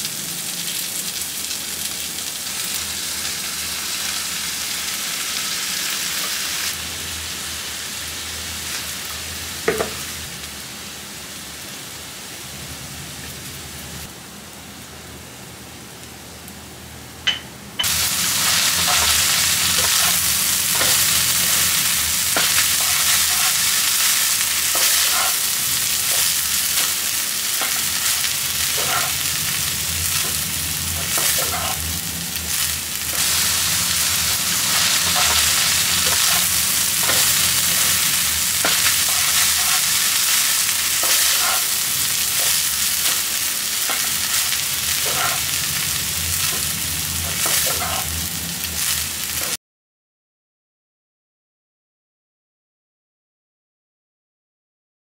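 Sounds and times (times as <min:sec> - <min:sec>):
rice sizzling in frying pan: 0:00.0 - 0:14.1, 0:17.8 - 0:49.6
spatula scraping and clicking pan: 0:28.8 - 0:29.2, 0:35.1 - 0:38.0, 0:38.6 - 0:40.0, 0:45.0 - 0:45.4.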